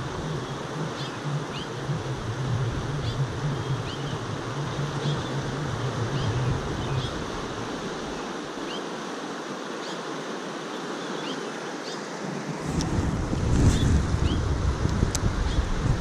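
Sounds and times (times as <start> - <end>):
wind buffeting microphone: 0.0 - 8.2, 12.5 - 16.0
river current rushing: 0.0 - 16.0.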